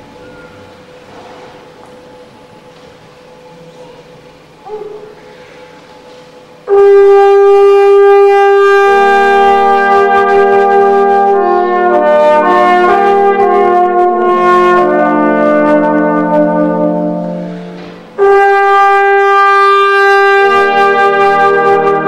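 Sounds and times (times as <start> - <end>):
trombone quartet playing chords: 6.6 - 22.0.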